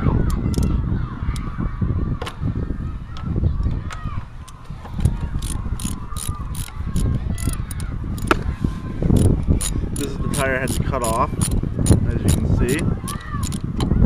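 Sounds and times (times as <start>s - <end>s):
wind rumble on microphone: 0.0s - 14.0s
ratchet wrench clicking: 0.3s - 0.7s, 5.4s - 8.3s, 9.2s - 13.6s.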